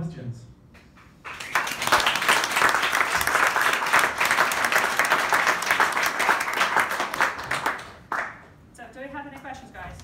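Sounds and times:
audience applauding: 1.2 - 8.4.

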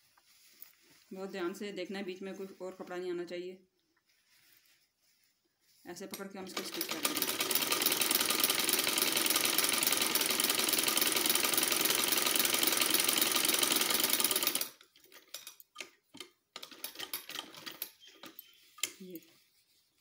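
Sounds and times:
sewing machine stitching: 6.1 - 15.9, 16.6 - 18.4.

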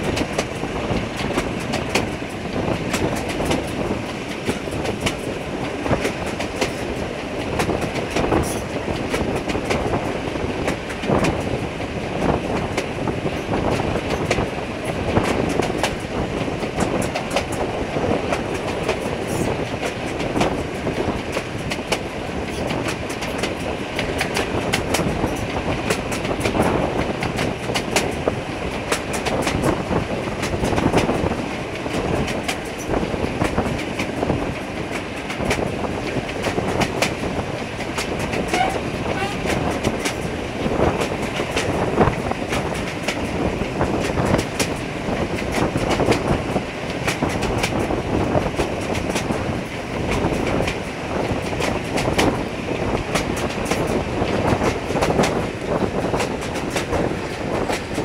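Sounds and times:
rush of moving train: 0.0 - 58.0
train wheels clattering over rail joints: 0.0 - 58.0.

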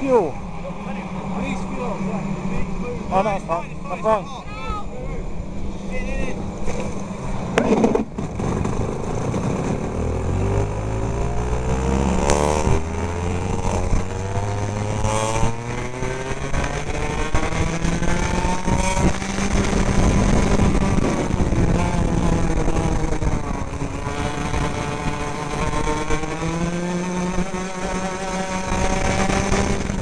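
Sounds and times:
go-kart engine accelerating: 0.0 - 30.0
steady rushing noise: 0.0 - 30.0.

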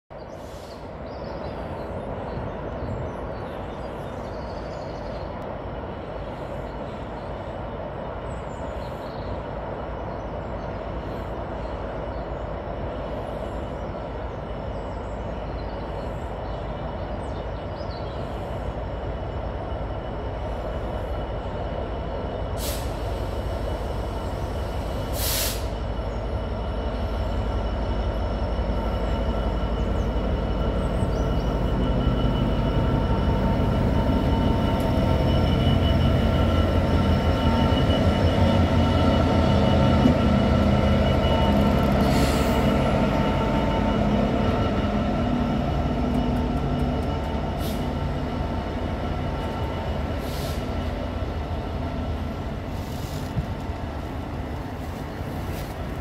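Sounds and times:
diesel locomotive rumble: 0.2 - 56.0
brief hisses: 25.2 - 25.8.

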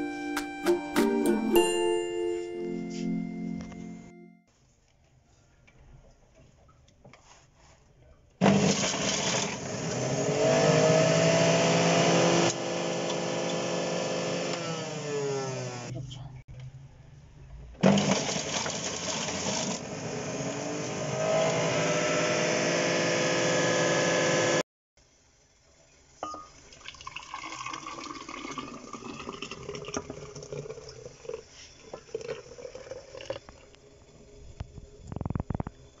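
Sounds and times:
juice pouring into a glass jug: 26.5 - 34.4.

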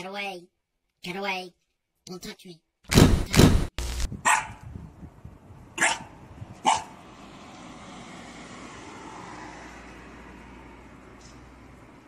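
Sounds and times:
young dog barking: 4.2 - 4.6, 5.8 - 7.0.

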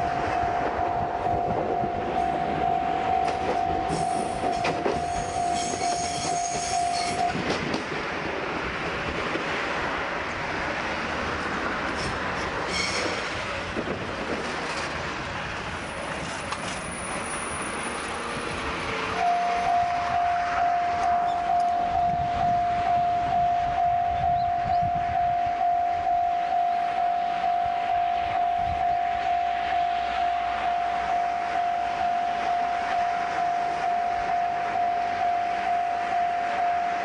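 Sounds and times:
steady high tone: 0.0 - 7.4, 19.2 - 37.0
wheels clacking over rail joints: 0.3 - 22.6
high brake squeal: 3.9 - 7.4, 12.7 - 13.3.

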